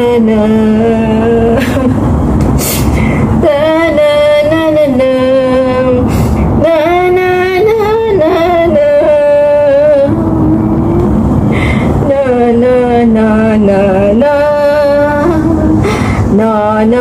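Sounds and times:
low background rumble: 0.0s - 17.0s
woman singing lullaby: 3.4s - 11.0s, 12.1s - 17.0s.

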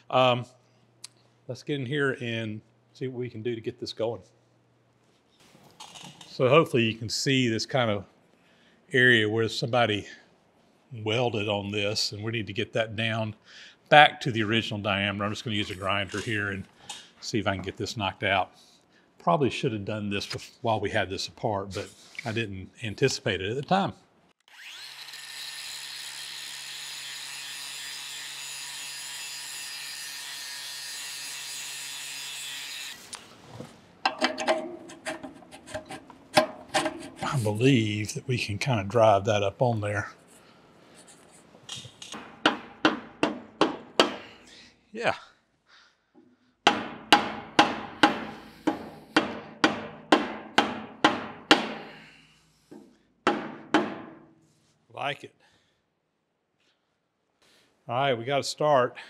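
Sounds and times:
angle grinder grinding metal: 24.5s - 33.2s
mallet striking steel pipe: 46.7s - 52.0s.

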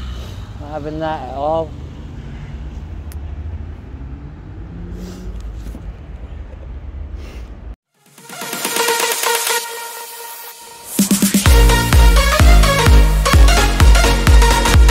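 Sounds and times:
road traffic passing: 0.0s - 7.8s, 8.8s - 14.9s
electronic dance music: 8.0s - 14.9s.

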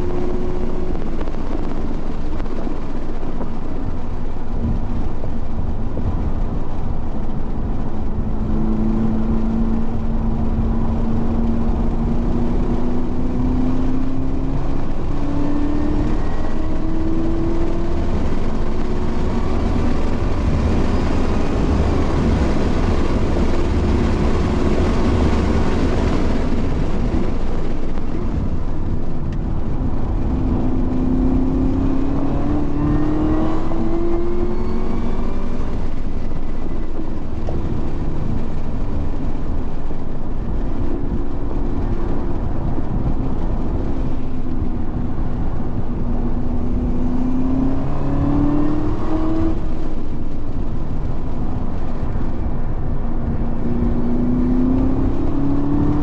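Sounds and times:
race car engine accelerating: 8.1s - 40.0s, 40.8s - 50.4s.

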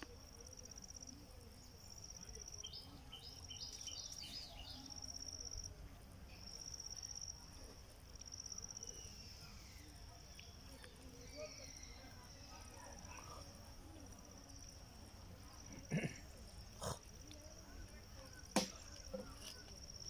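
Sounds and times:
bird chirping: 1.8s - 5.2s.

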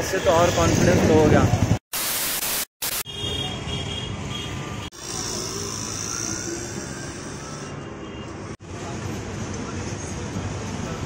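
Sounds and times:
traffic noise: 0.0s - 1.8s, 2.8s - 11.0s
general hubbub: 4.9s - 11.0s.

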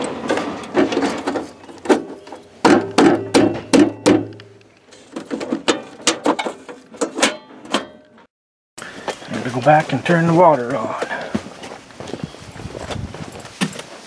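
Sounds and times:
metal cover being handled: 0.0s - 8.3s.

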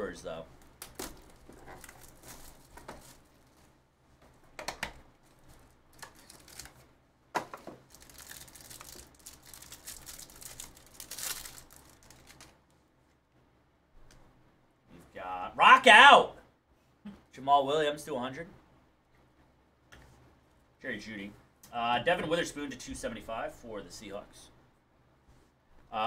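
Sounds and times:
foil wrapper crinkling and tearing: 0.8s - 3.3s, 5.9s - 6.8s, 7.8s - 12.6s
cards rustling: 5.3s - 6.9s, 7.6s - 12.6s.

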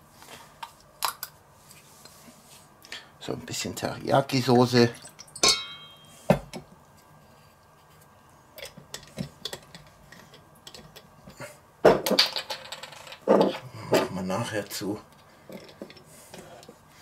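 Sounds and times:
glass bottle clinking on steel bowl: 5.0s - 6.2s.

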